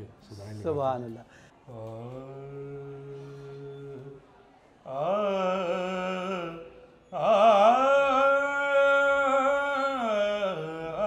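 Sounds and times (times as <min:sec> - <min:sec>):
person singing devotional verse: 0:01.6 - 0:11.0.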